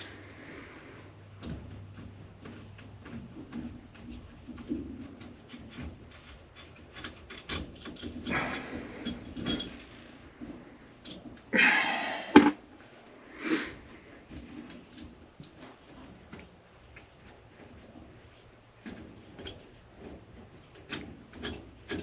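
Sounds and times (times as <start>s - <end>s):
clicks and rustling of hands: 0.0s - 11.5s, 13.8s - 22.0s
scraping rustle: 0.0s - 11.5s.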